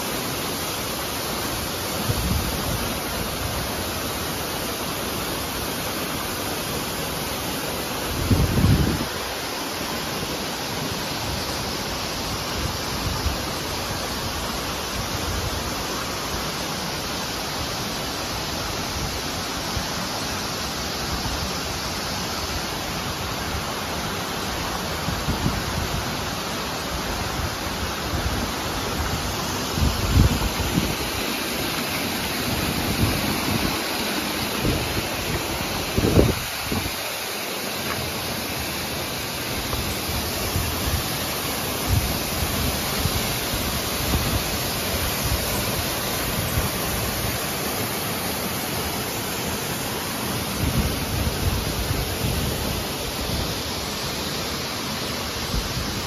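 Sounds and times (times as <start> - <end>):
water flowing over rocks: 0.0 - 56.0.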